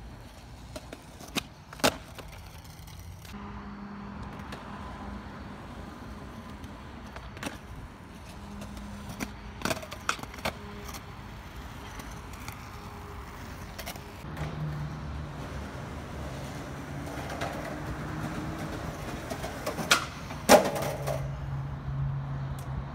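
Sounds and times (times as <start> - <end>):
skateboard clacking on pavement: 0.0 - 3.4, 6.3 - 14.8, 15.4 - 21.3
skateboard wheels rolling on asphalt: 0.0 - 22.9.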